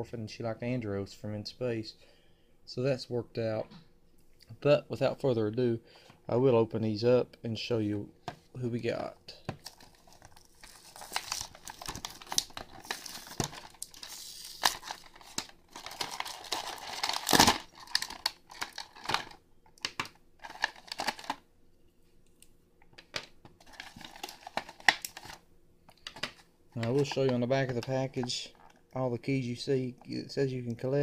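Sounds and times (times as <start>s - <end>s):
plastic blister pack crinkling: 9.5s - 21.4s, 23.6s - 28.9s
plastic tearing crackle: 9.6s - 21.4s, 23.6s - 25.4s.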